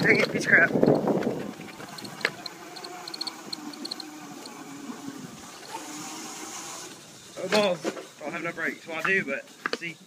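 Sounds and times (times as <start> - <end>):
electric scooter motor whine: 0.6 - 7.5
light ticking: 1.8 - 4.5.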